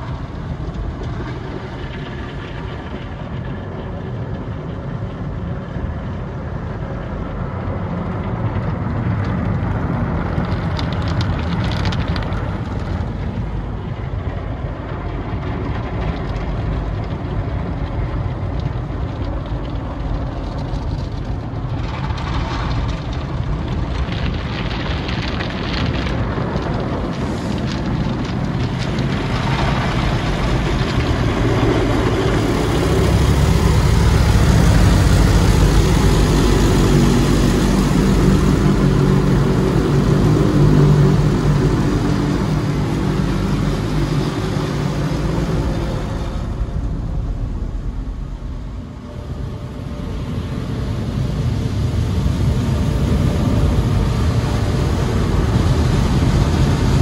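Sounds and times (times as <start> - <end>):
water spraying: 26.2 - 57.0.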